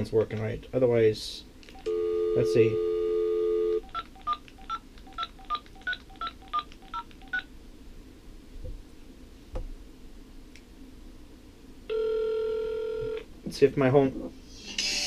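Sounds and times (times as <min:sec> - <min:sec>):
touch-tone dialing beeps: 0:03.6 - 0:07.5.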